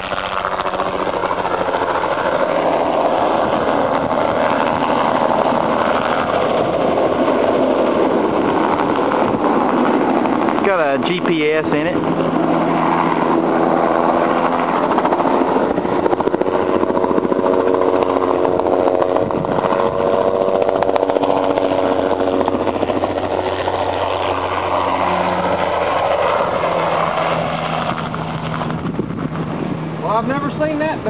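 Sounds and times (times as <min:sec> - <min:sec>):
helicopter flying low: 0:00.0 - 0:31.0.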